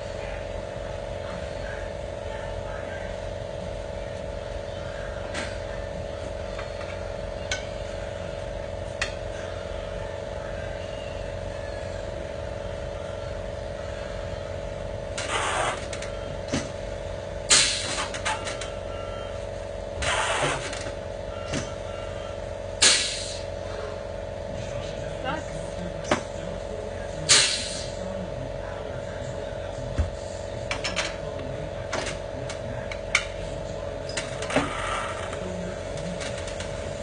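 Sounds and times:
engine humming: 0.0 - 37.0
compressed air hissing blasts: 17.5 - 18.0, 22.8 - 23.5, 27.3 - 28.0.

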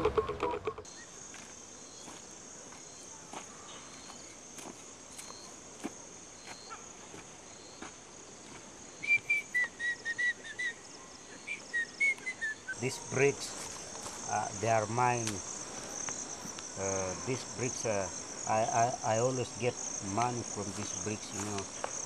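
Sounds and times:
high-pitched insect buzz: 12.7 - 22.0.

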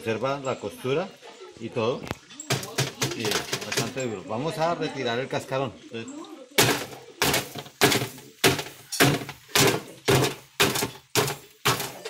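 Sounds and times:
hard blows cracking crust: 2.5 - 3.9, 6.6 - 12.0.

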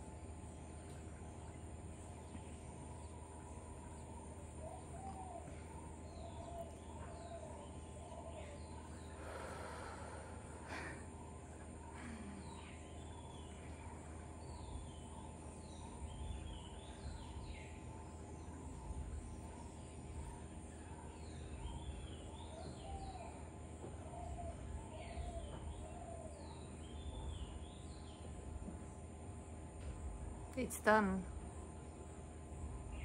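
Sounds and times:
birds chirping: 0.0 - 33.0
low background rumble: 0.0 - 33.0
lower warbling bird call: 2.4 - 27.9.

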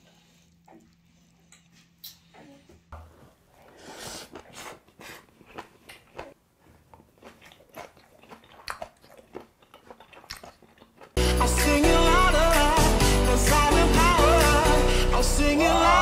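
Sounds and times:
man chewing food: 0.0 - 11.4.

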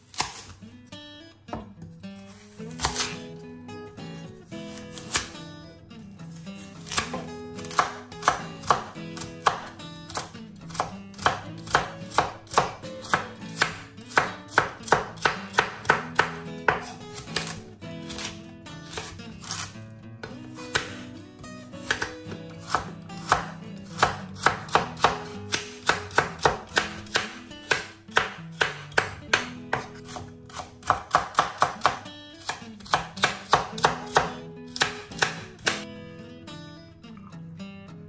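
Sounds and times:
knife chopping on wooden board: 0.1 - 0.6, 2.8 - 3.2, 4.7 - 5.4, 6.8 - 21.0, 21.8 - 35.8
acoustic guitar music: 0.6 - 38.0.

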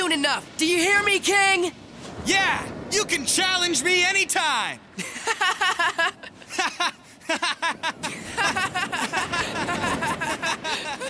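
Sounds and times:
boys laughing: 5.0 - 11.0.

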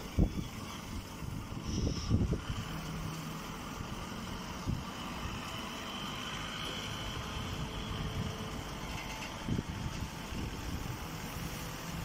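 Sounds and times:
baling machinery rumbling: 0.0 - 12.0.

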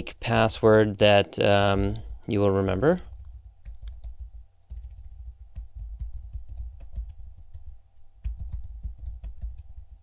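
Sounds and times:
typing on computer keyboard: 2.6 - 9.9.

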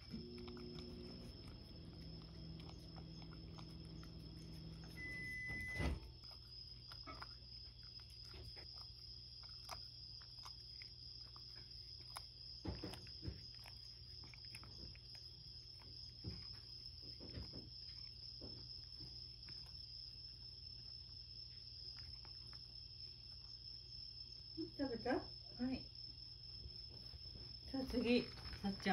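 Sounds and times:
cat lapping from a ceramic bowl: 0.0 - 5.5
low hum: 0.0 - 6.4.

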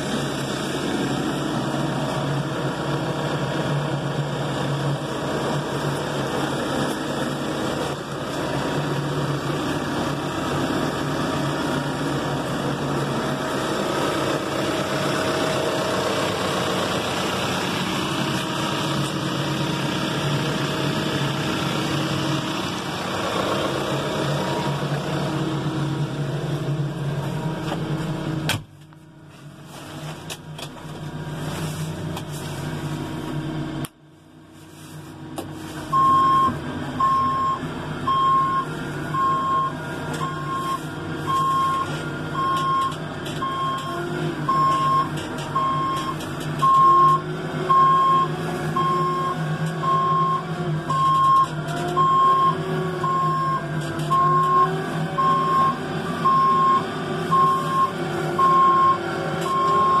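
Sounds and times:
diesel engine running: 0.0 - 60.0
reverse alarm beeping: 35.9 - 43.9, 44.5 - 60.0.

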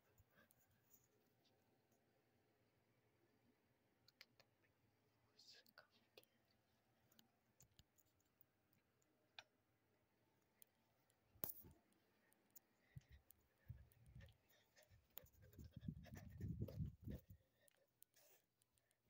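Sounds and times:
phone rubbing against microphone: 14.6 - 17.4.

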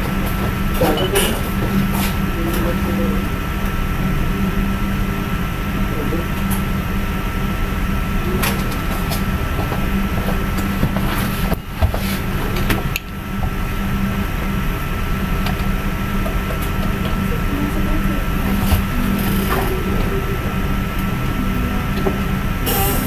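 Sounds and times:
background hum and hiss: 0.0 - 23.0
thin high tone: 16.9 - 23.0.

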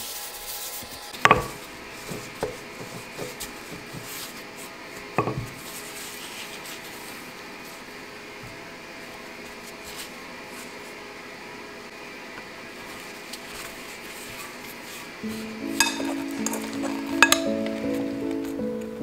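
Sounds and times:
rolling pin knocking on countertop: 1.2 - 4.2, 5.2 - 5.7, 15.8 - 17.8.

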